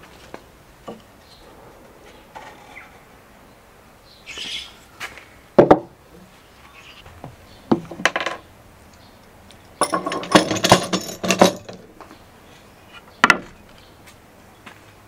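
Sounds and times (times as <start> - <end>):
knocks on wood: 5.6 - 5.9
metal clamps clattering: 9.8 - 11.9.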